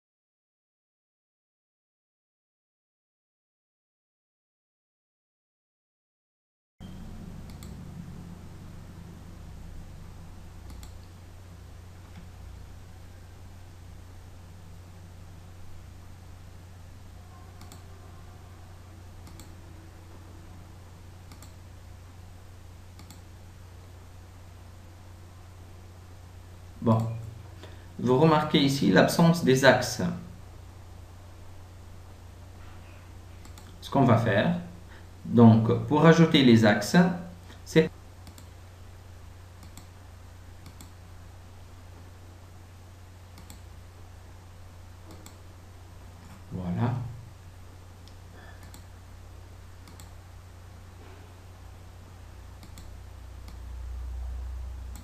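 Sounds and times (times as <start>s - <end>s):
low electrical hum: 6.8s - 55.0s
computer mouse clicking: 7.4s - 7.8s, 10.6s - 11.2s, 17.6s - 17.9s, 19.2s - 19.6s, 21.3s - 21.6s, 22.9s - 23.2s, 33.4s - 33.8s, 38.2s - 38.6s, 39.6s - 40.0s, 40.6s - 41.0s, 43.3s - 43.7s, 45.0s - 45.5s, 48.0s - 49.0s, 49.8s - 50.2s, 52.6s - 53.6s.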